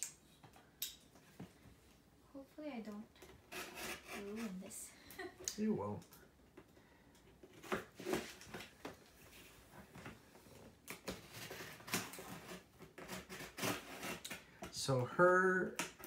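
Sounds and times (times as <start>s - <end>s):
utility knife cutting tape: 3.5s - 4.5s, 10.9s - 14.4s.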